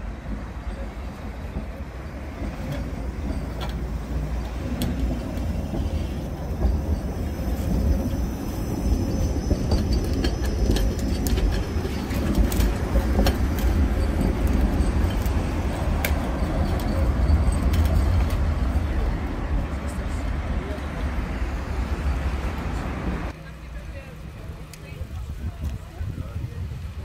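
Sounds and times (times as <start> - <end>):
tram wheels rumbling on rails: 0.0 - 27.0.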